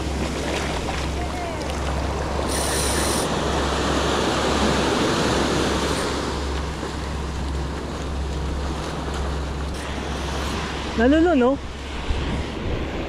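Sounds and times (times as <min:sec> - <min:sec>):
ocean surf breaking: 0:00.0 - 0:13.0
wind on microphone: 0:09.8 - 0:13.0.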